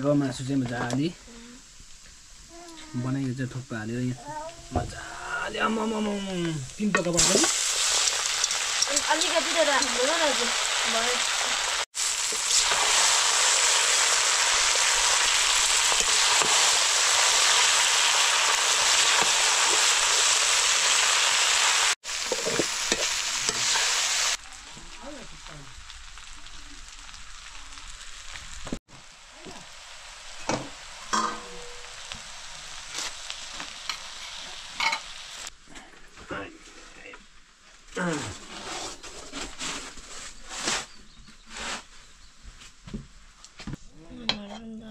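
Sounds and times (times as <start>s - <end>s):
food sizzling in hot oil: 1.4s - 35.5s.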